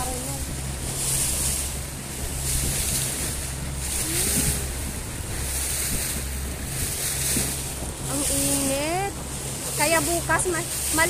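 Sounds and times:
speedboat engine drone: 0.0s - 11.0s
water splashing against hull: 0.0s - 11.0s.

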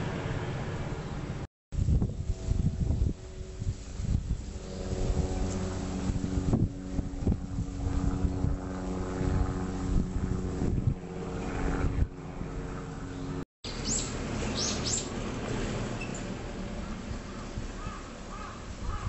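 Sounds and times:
helicopter droning overhead: 0.0s - 19.0s
wind on microphone: 1.7s - 13.4s, 17.0s - 19.0s.

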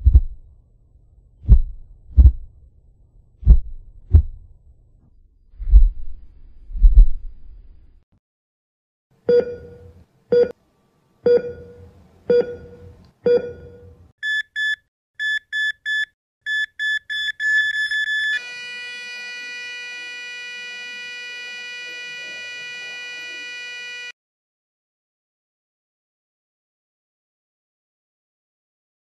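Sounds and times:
heartbeat thumps: 0.0s - 0.4s, 1.4s - 2.6s, 3.4s - 4.6s, 5.6s - 7.4s
heart monitor beeps: 9.3s - 10.5s, 11.3s - 18.4s
flatline tone: 18.4s - 24.1s.

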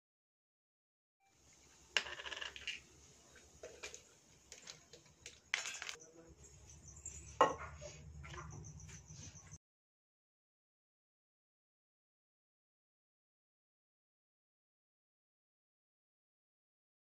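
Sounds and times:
sharp clicks and metallic clinks: 3.9s - 6.1s.

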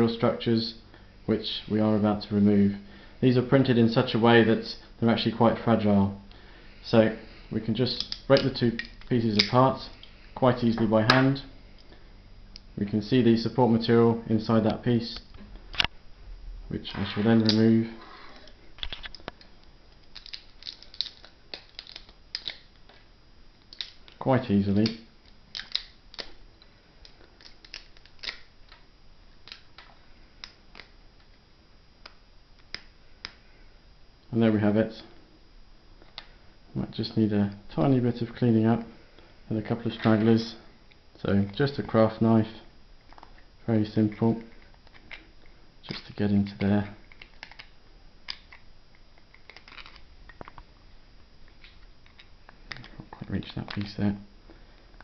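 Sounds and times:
plastic snapping and crackling: 18.4s - 31.4s, 44.4s - 50.7s.

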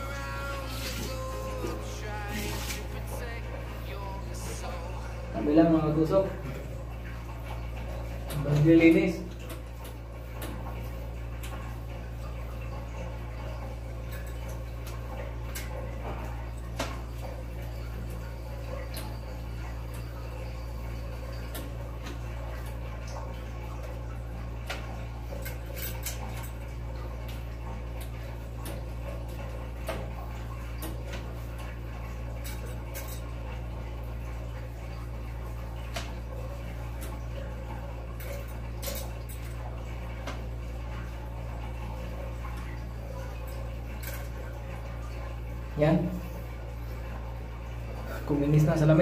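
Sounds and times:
steady low hum: 0.0s - 49.0s
cloth wiping a mirror: 0.2s - 3.2s.

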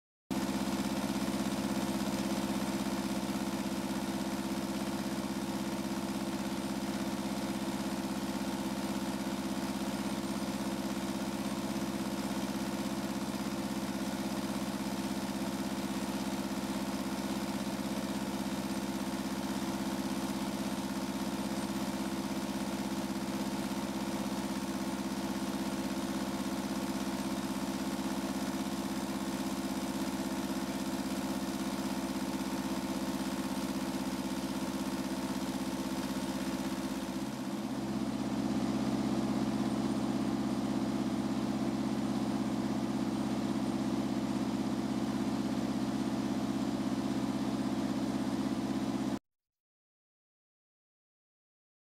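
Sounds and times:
diesel engine running: 36.6s - 49.1s.

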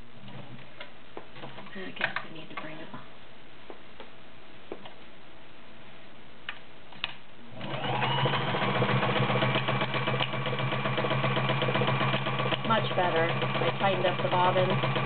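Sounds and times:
sewing machine stitching: 7.5s - 15.0s.

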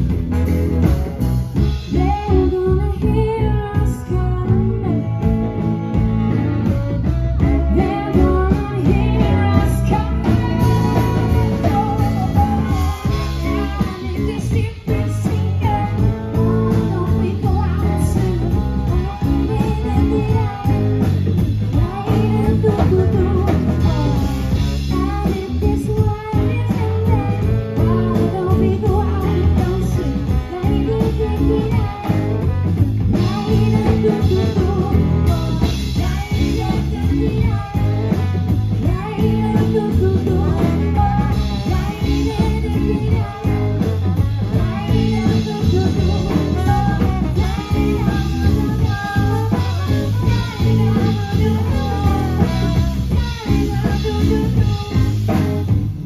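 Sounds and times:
drum kit: 0.0s - 56.0s
electric bass: 0.0s - 56.0s
electric guitar: 0.0s - 56.0s
saxophone: 0.0s - 56.0s
woman singing: 1.6s - 55.8s
trombone: 26.9s - 55.7s.

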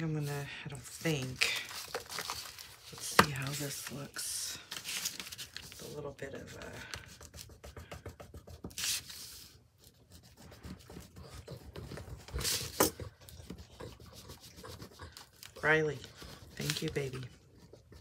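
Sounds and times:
pencil scratching on cardboard: 5.8s - 18.0s.

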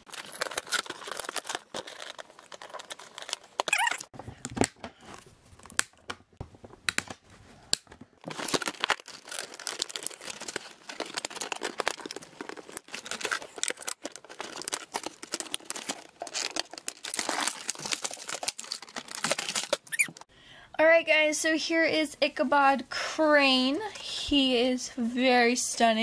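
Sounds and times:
packaging crinkling and rustling: 0.0s - 20.3s.

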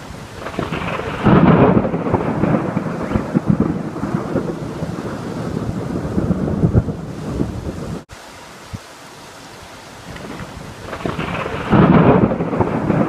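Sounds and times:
thunder rumbling: 0.0s - 8.1s, 10.1s - 13.0s
heavy rain hissing: 0.0s - 13.0s.

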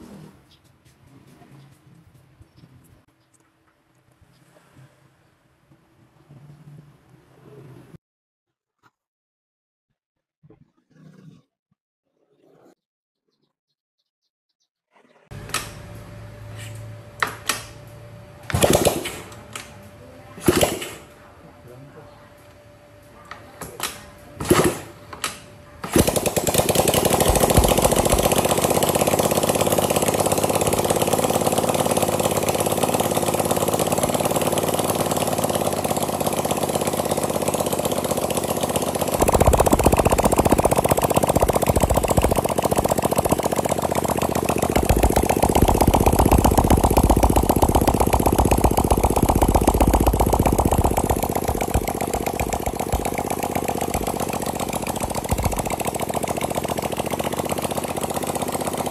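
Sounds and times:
small engine running: 15.3s - 21.1s, 25.8s - 58.9s.

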